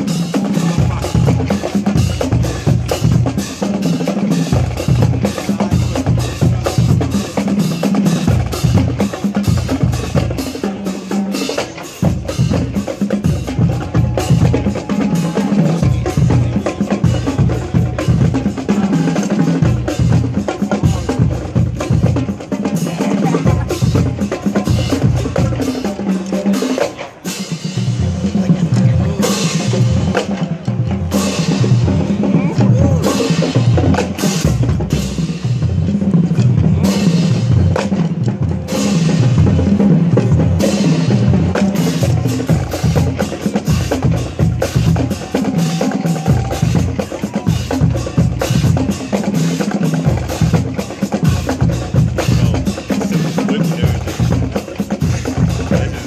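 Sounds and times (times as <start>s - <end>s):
marching bass drums: 0.0s - 56.0s
snare drums rattling: 35.8s - 56.0s.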